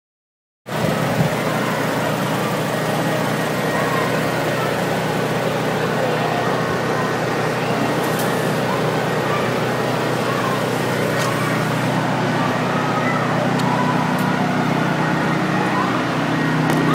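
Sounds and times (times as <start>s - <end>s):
faint distant voices: 0.7s - 16.9s
low mechanical hum: 0.7s - 16.9s
street noise: 0.7s - 16.9s.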